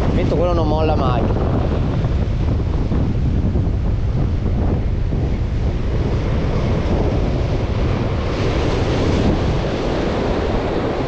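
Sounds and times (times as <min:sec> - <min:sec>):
wave crashing over rocks: 0:00.0 - 0:11.0
wind buffeting microphone: 0:00.0 - 0:11.0
surf breaking on rocks: 0:05.7 - 0:11.0.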